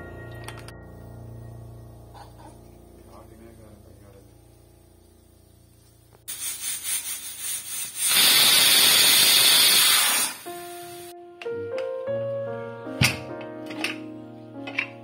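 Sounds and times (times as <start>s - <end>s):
background music: 0.0s - 5.4s, 10.2s - 15.0s
pressure cooker hissing steam: 6.3s - 11.1s.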